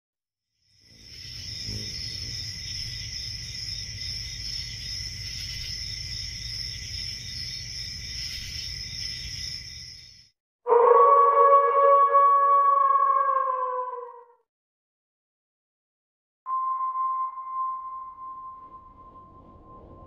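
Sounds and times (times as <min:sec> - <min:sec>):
crickets chirring: 0:00.6 - 0:10.3
loud sustained tone: 0:16.5 - 0:20.0
low rumble: 0:18.6 - 0:20.0.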